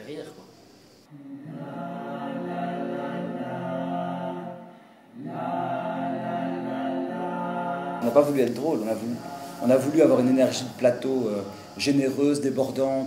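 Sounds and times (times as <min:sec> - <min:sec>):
voices singing chords: 0:01.0 - 0:13.0.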